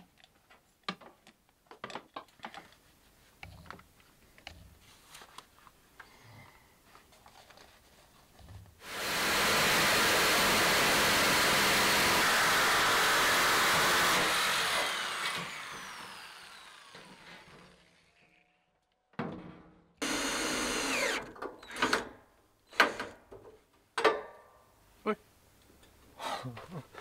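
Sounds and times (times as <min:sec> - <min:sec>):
cordless drill driving screws into metal: 0:08.8 - 0:17.9, 0:20.0 - 0:23.2
electric power tool running: 0:08.8 - 0:18.1, 0:20.0 - 0:22.0.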